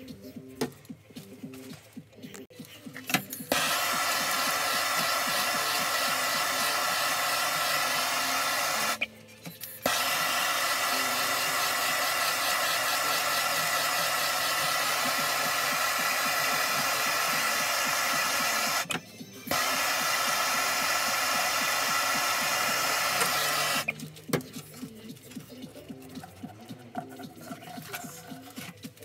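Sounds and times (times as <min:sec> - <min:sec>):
gas torch hissing: 0:03.5 - 0:09.0, 0:09.8 - 0:18.9, 0:19.5 - 0:23.9.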